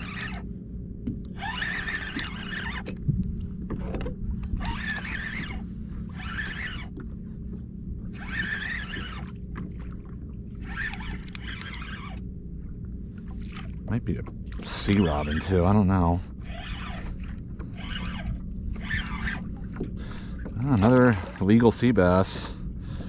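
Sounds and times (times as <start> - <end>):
fishing reel cranking: 0.0 - 0.5, 1.3 - 3.0, 4.0 - 7.0, 8.1 - 9.4, 10.6 - 12.3, 14.6 - 19.6
steady low rumble: 0.0 - 23.0.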